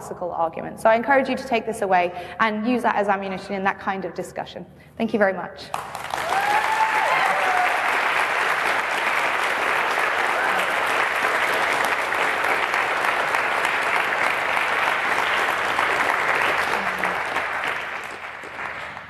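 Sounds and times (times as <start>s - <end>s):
audience applauding: 5.7s - 19.0s.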